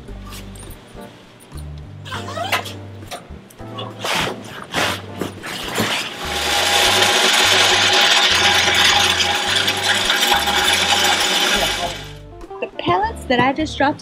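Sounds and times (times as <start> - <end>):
fabric cover rustling: 3.8 - 6.5
pellets pouring into hopper: 4.0 - 12.2.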